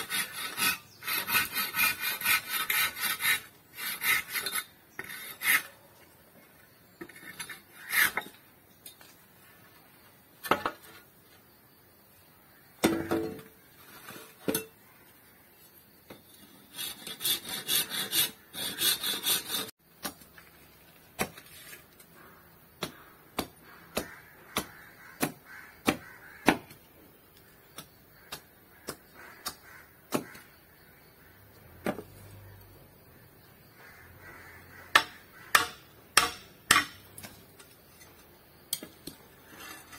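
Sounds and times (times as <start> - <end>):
blade scraping wooden handle: 0.0 - 5.8.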